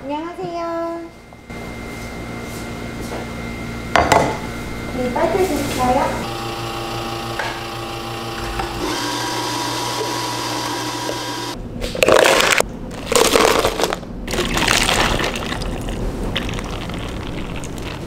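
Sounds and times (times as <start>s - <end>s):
espresso machine humming: 1.4s - 11.6s
water pouring over ice: 14.3s - 18.0s.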